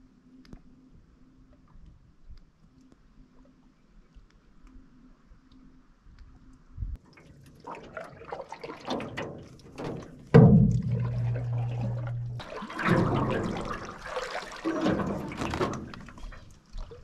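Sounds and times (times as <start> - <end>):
low steady hum: 0.0 - 17.0
water dripping off paddle: 7.1 - 17.0
paddle strokes splashing: 7.2 - 17.0
loud sudden thump: 10.4 - 11.6.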